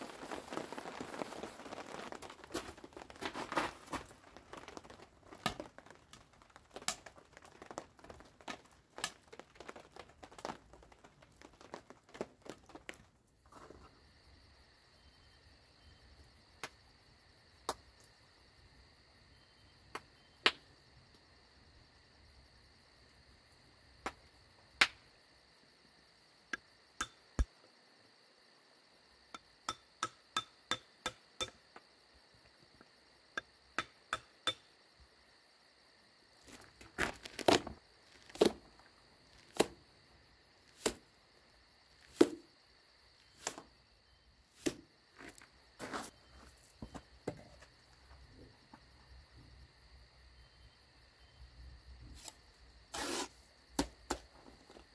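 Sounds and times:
crackling and rustling: 0.0s - 13.9s, 36.3s - 41.1s.

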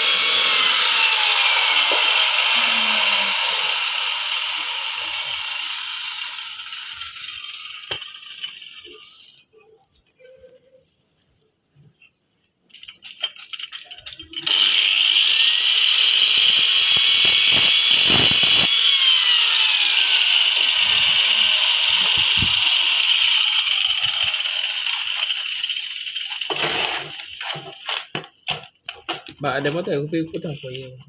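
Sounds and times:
angle grinder cutting stone: 0.0s - 9.4s, 14.2s - 28.2s.

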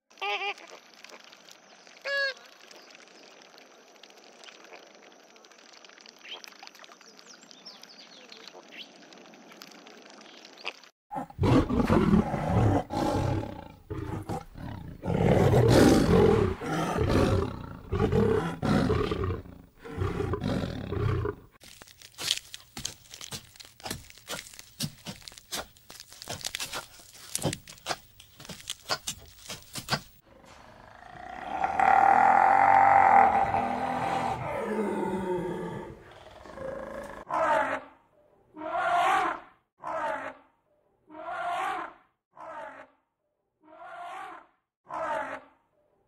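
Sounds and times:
deep animal roaring and growling: 11.1s - 21.5s, 30.2s - 37.8s
quick clicks and crackles: 21.6s - 30.2s.

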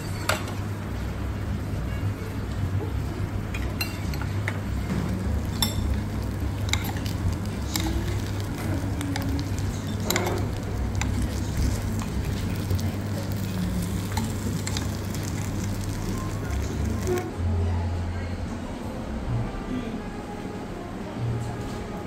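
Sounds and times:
food sizzling in clay pot: 5.1s - 17.3s
metal spoon scraping pot: 6.6s - 12.2s.

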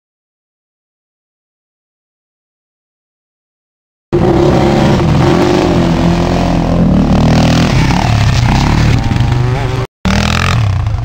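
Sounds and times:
quad engine revving hard: 4.2s - 11.0s.

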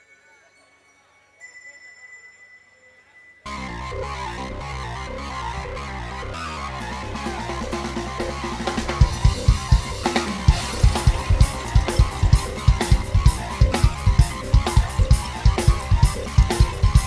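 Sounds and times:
synthesizer: 0.0s - 17.0s
bass: 3.5s - 17.0s
guitar: 3.5s - 17.0s
drum kit beat: 6.7s - 17.0s.

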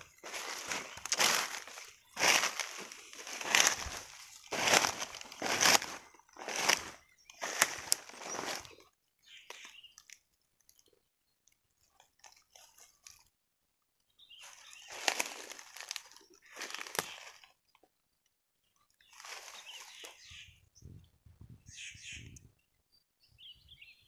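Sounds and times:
footsteps crunching dry leaves: 0.0s - 8.8s, 14.4s - 17.5s, 19.1s - 20.4s.

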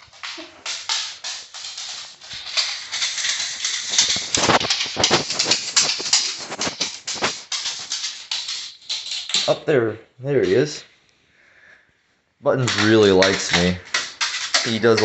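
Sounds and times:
footsteps on a hard floor: 0.0s - 8.2s
rubbing against phone microphone: 0.0s - 8.8s.

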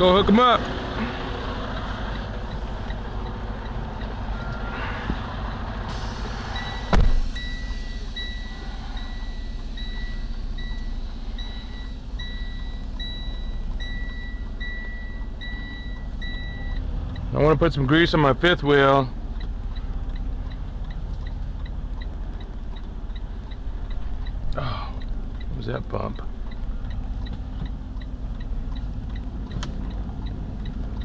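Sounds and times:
diesel truck engine idling: 0.0s - 31.0s
reversing alarm beeping: 1.7s - 5.0s, 5.9s - 17.3s
loud thump: 6.7s - 7.4s.

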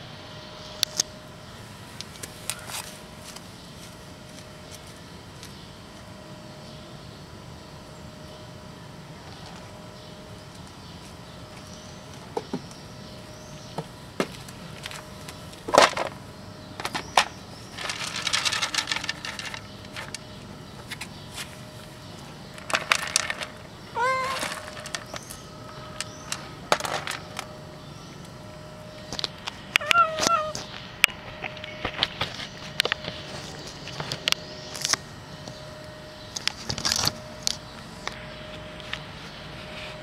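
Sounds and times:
cat crunching dry kibble: 22.6s - 25.3s
cat meowing: 24.0s - 24.5s, 29.8s - 30.6s.

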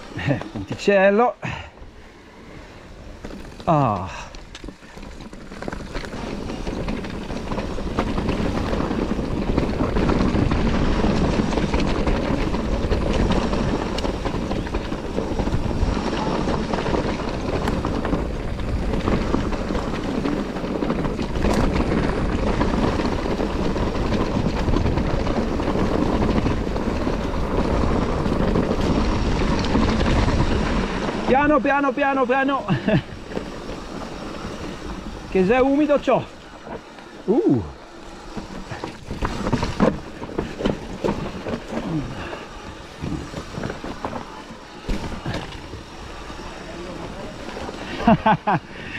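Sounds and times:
tyre noise over rocks and dirt: 3.0s - 48.7s
bike knocking on bumps: 3.2s - 48.9s
wind on microphone: 32.7s - 48.9s.

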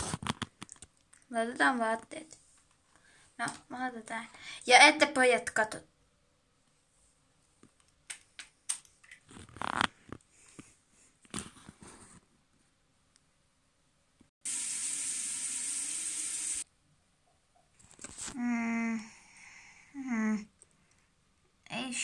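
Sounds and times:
toy shower hissing: 14.5s - 16.6s.

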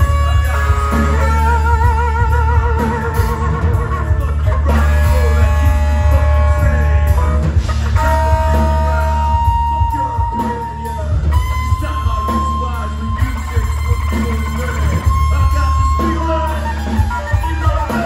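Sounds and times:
bass and drum kit: 0.0s - 18.0s
electric guitars: 0.0s - 18.0s
vocals at microphone: 0.0s - 18.0s.

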